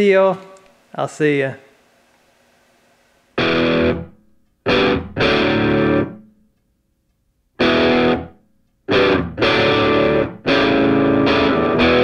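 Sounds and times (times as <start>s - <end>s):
distorted electric guitar chords: 3.4s - 6.2s, 7.6s - 12.0s.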